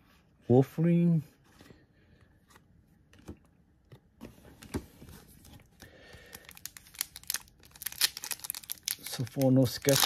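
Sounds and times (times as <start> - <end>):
foil wrapper crinkling: 6.3 - 10.0.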